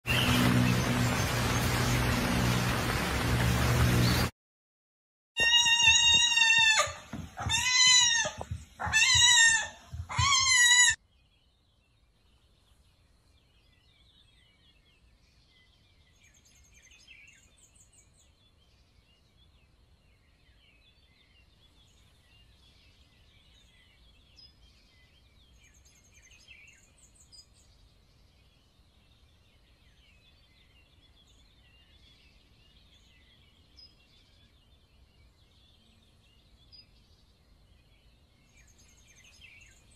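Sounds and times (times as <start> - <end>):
kitten meowing: 5.4 - 11.0.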